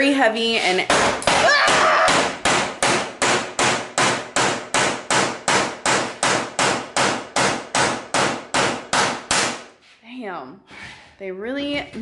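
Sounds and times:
hammer striking steel door: 0.9s - 9.7s.

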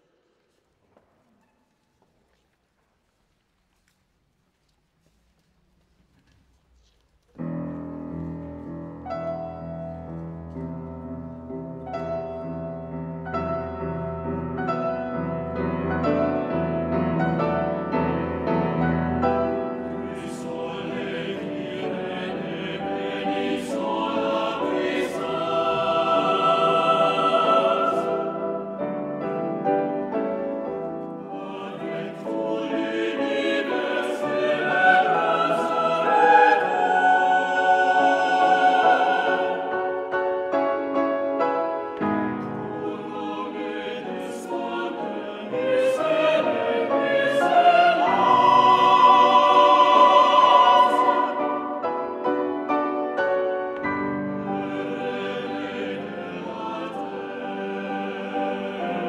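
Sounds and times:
piano chords: 7.4s - 59.0s
choir singing in chords: 12.1s - 59.0s.

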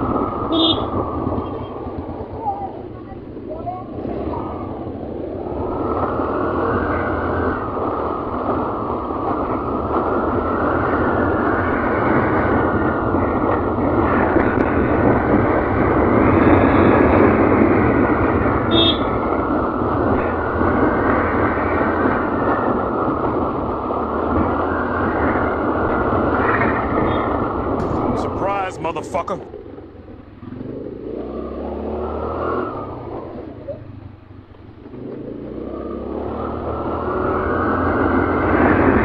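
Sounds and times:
wind over microphone: 0.0s - 28.7s
motorcycle engine running: 0.3s - 39.0s.

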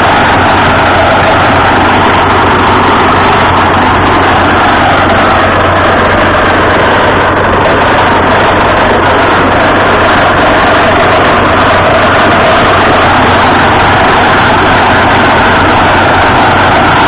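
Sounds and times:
drilling rig machine noise: 0.0s - 17.0s
low hum: 0.0s - 17.0s.

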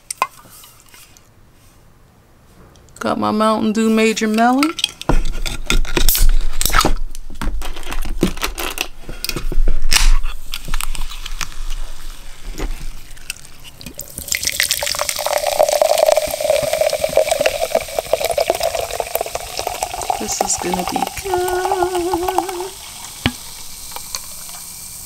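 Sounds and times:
soda pouring and fizzing: 10.7s - 25.0s.

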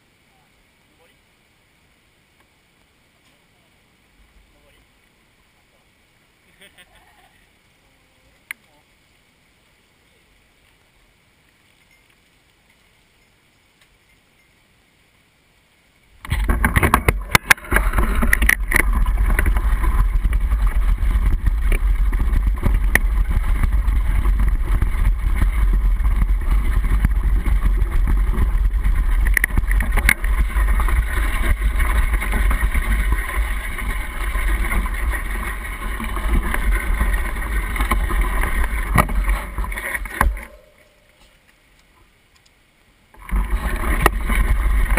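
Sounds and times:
bike tyres rumbling on gravel: 16.1s - 41.5s, 43.1s - 44.9s
bike rattling over bumps: 16.2s - 41.2s, 43.2s - 44.9s.

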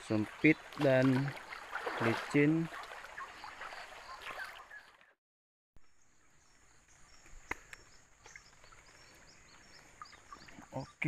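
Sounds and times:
rushing floodwater: 0.0s - 4.5s.

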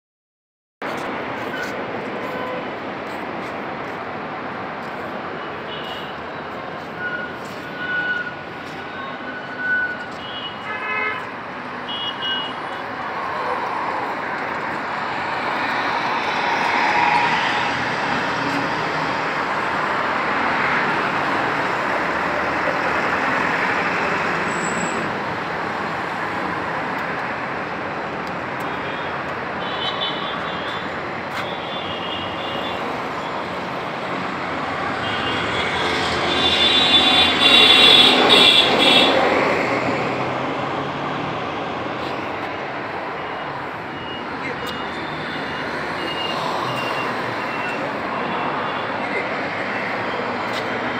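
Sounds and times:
road traffic rushing: 0.8s - 50.9s.

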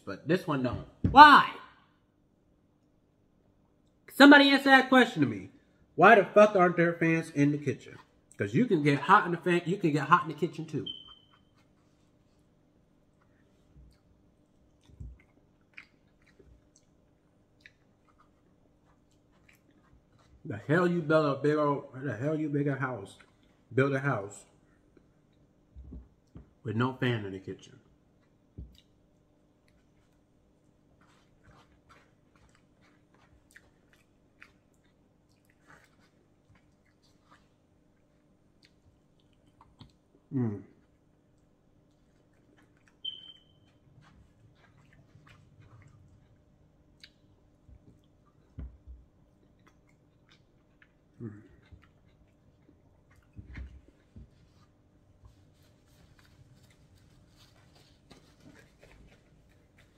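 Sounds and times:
chewing and wet mouth clicks: 13.1s - 20.3s, 28.2s - 30.8s, 31.5s - 40.1s, 40.8s - 48.6s, 49.2s - 53.4s.

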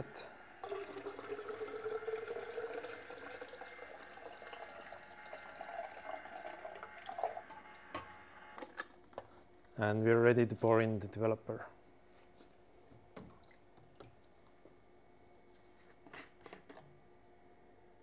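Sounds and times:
water pouring into cylinder: 0.6s - 7.8s.

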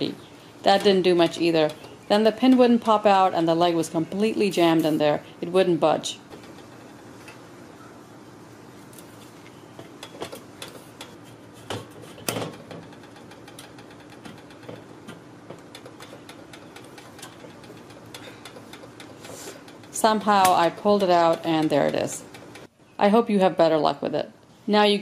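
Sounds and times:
metal grill leg clicking and knocking: 9.8s - 22.7s.

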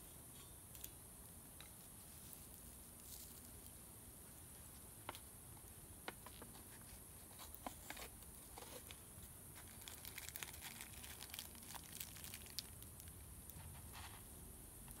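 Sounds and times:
paper packet crinkling and tearing: 9.6s - 13.2s.

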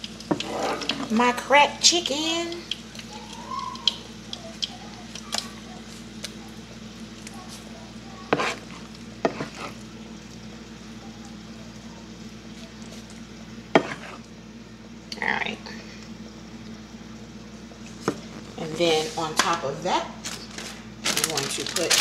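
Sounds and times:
oil sizzling in a frying pan: 0.0s - 6.2s.

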